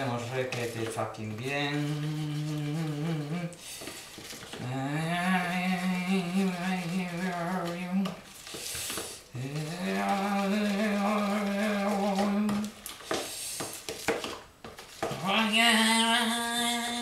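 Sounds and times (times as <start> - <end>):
man singing wordless notes: 0.0 - 3.6, 4.6 - 8.3, 9.3 - 12.8, 15.1 - 17.0.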